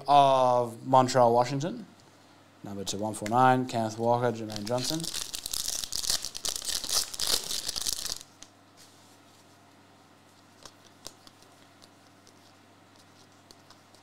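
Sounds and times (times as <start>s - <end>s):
low steady hum: 0.0s - 14.0s
plastic wrapper crinkling: 4.5s - 8.5s.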